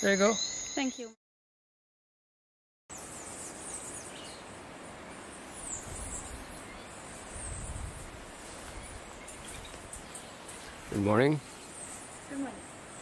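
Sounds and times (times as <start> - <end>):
steady background hiss: 2.9 - 13.0.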